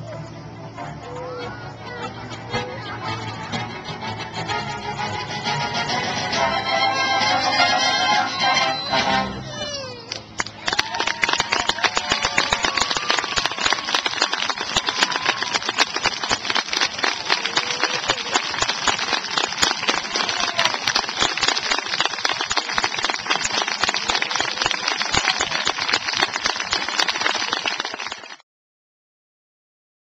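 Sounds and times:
crowd applauding: 0:10.1 - 0:28.4.

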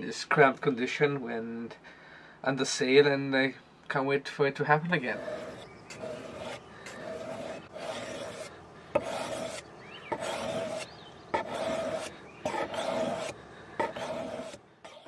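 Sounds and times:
blade scraping on sharpening stone: 0:05.1 - 0:15.0.

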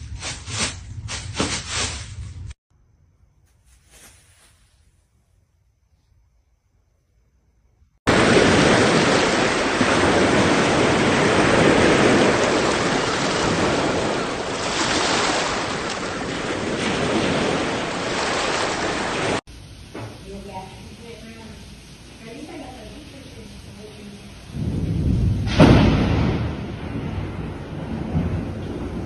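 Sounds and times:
surf washing onto beach: 0:08.1 - 0:19.4
wind on microphone: 0:23.8 - 0:29.0.

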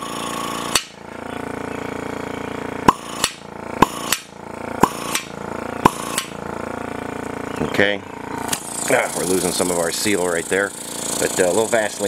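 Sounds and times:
vacuum pump pulsing hum: 0:00.0 - 0:12.0
sharp clicks: 0:02.9 - 0:06.3.

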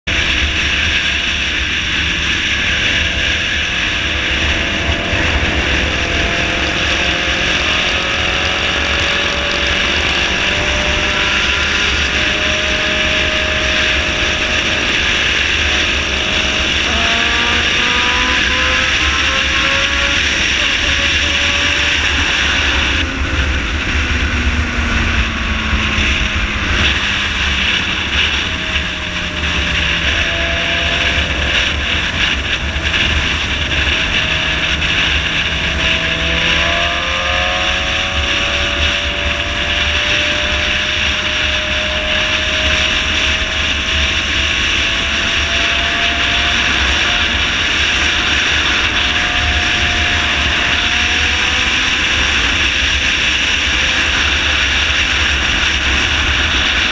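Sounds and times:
motorcycle engine running: 0:00.0 - 0:56.9
wind rushing over microphone: 0:00.0 - 0:56.9.

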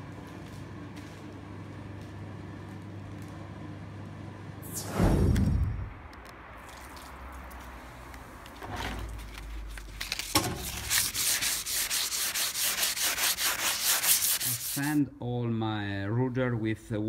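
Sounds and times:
wet sanding by hand: 0:10.6 - 0:15.0.

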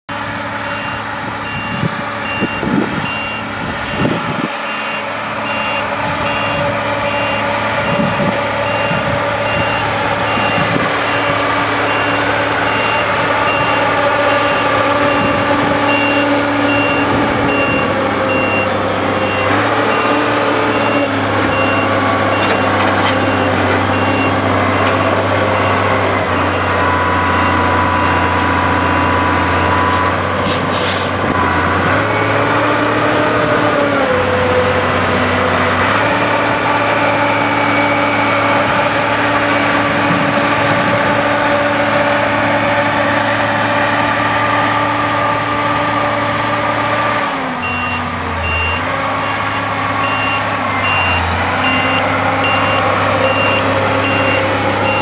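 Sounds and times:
diesel engine running under load: 0:00.1 - 0:55.0
back-up alarm beeping: 0:00.7 - 0:28.3, 0:47.6 - 0:55.0.

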